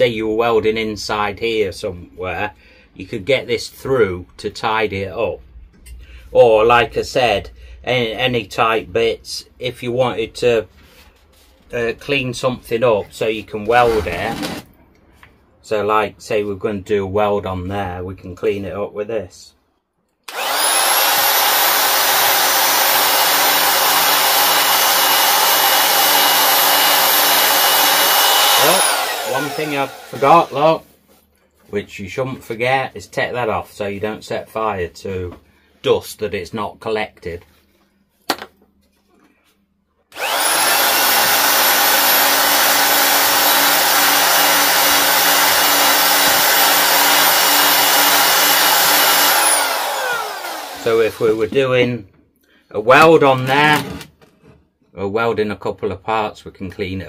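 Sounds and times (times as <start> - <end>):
belt file sander whining: 20.3 - 30.8, 40.1 - 51.6.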